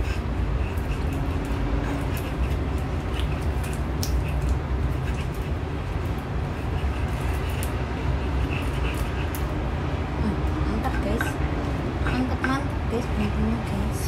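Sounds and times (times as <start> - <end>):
pestle grinding in stone mortar: 0.0 - 9.6.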